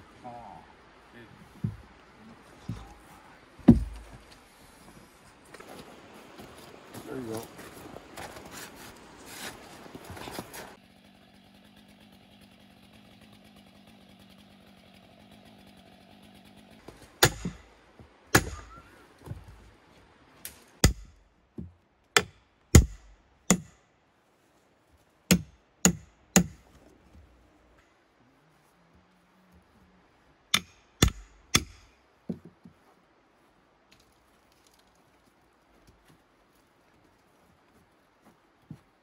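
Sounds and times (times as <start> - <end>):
axe and hammer blows on log: 16.9 - 17.7, 18.3 - 19.0, 20.8 - 21.2, 22.2 - 23.8, 25.3 - 26.6, 30.5 - 32.0.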